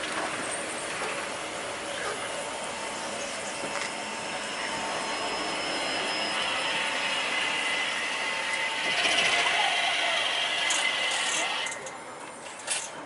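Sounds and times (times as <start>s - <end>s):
tram running with mechanical whine: 0.0s - 13.0s.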